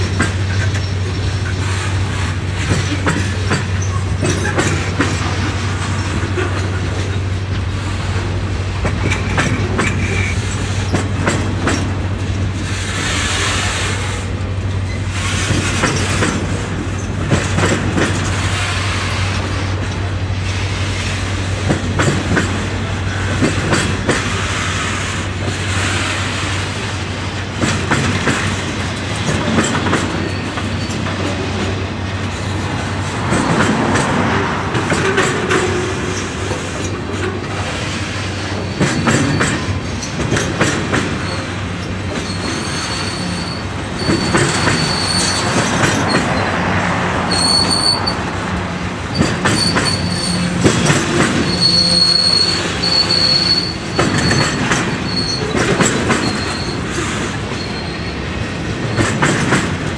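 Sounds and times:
train wheels clattering on rails: 0.0s - 59.9s
high-pitched wheel squeal: 42.2s - 46.4s, 47.2s - 48.3s, 49.1s - 58.2s.

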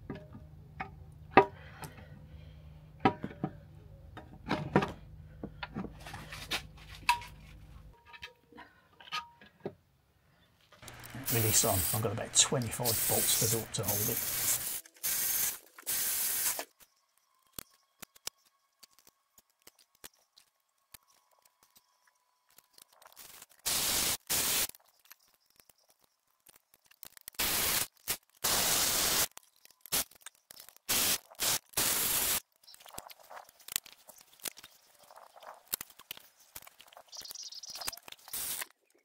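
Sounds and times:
cordless ratchet bursts: 10.8s - 16.6s.

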